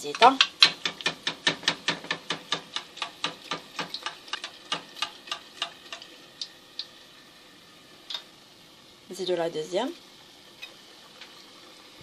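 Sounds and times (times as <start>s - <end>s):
quick rhythmic taps: 0.0s - 6.0s
hot oil splashing in metal pot: 0.0s - 12.0s.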